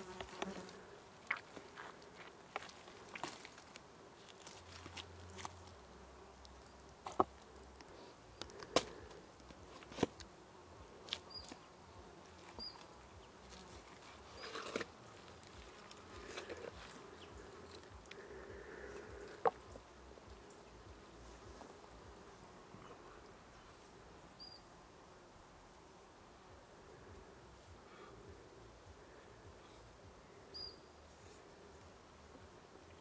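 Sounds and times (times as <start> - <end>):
insect buzzing: 0.0 - 3.3, 4.5 - 24.7.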